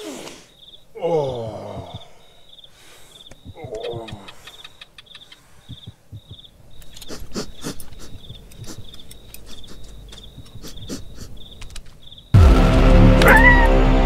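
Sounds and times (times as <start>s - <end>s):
cricket chirping: 0.0s - 12.4s
low rumble: 12.4s - 14.0s.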